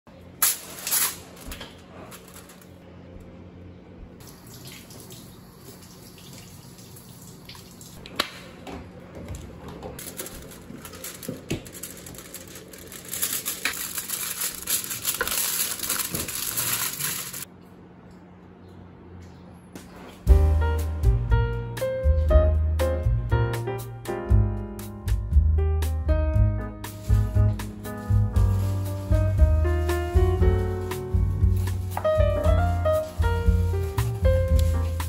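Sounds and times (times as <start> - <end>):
aluminium foil crinkling: 0.4 - 2.8, 10.0 - 17.5, 26.9 - 35.0.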